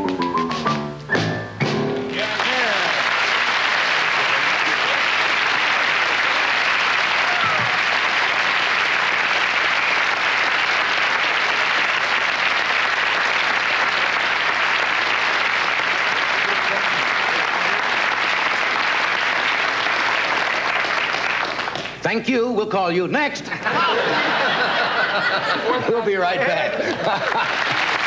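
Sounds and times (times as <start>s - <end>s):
audience applauding: 2.1s - 22.0s, 23.9s - 28.0s.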